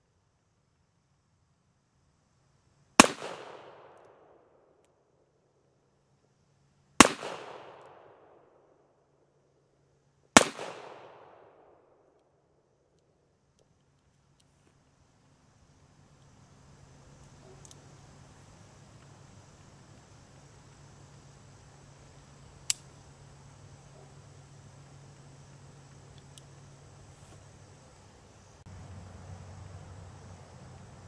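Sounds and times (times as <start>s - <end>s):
revolver gunshots with echo: 3.0s - 4.4s, 7.0s - 8.6s, 10.4s - 12.0s.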